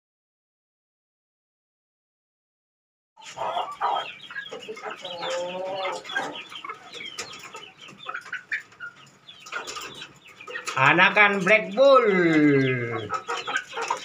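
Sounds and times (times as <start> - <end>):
chicken wavering call: 3.2 - 6.9, 12.0 - 14.0
chickens clucking: 3.2 - 14.0.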